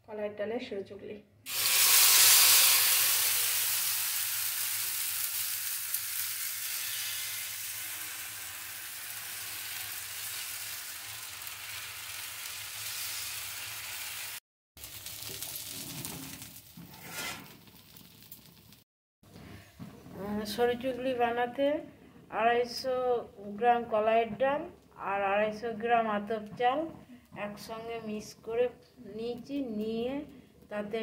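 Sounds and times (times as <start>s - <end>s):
batter sizzling in frying pan: 1.5s - 18.8s.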